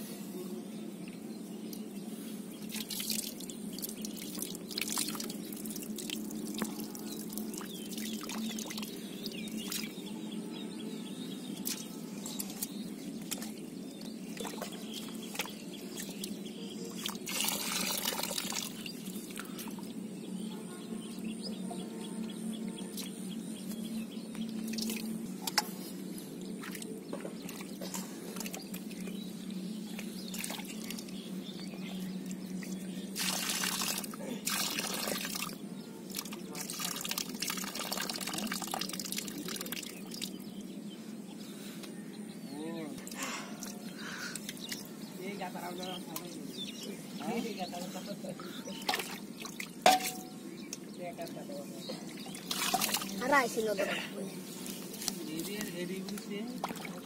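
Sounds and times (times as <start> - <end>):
water pouring: 2.6 - 9.9, 16.9 - 19.4, 30.3 - 31.2, 33.1 - 40.4, 48.8 - 50.4, 52.1 - 53.8, 56.1 - 57.0
muddy water sloshing and splashing: 2.6 - 10.0, 11.6 - 19.9, 26.6 - 40.4, 48.7 - 50.4, 51.9 - 55.3, 55.9 - 57.0
water dripping: 2.6 - 10.0, 14.3 - 19.9, 24.3 - 25.7, 26.6 - 31.3, 32.2 - 40.4, 48.7 - 50.9, 52.1 - 53.8, 54.7 - 57.0.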